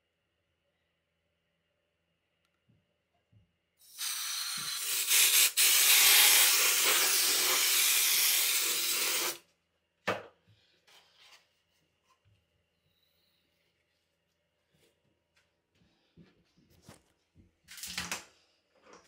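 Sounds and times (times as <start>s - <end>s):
compressed air spraying hiss: 3.8s - 9.4s.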